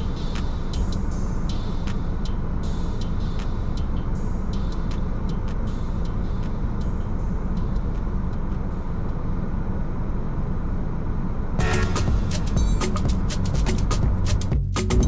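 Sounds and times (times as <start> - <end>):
light ticks: 3.0 - 9.2.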